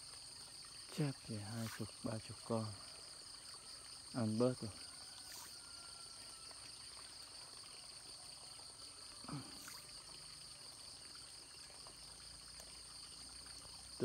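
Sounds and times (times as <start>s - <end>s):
water trickling: 0.0s - 14.0s
high insect chirring: 0.3s - 7.8s, 8.6s - 11.2s.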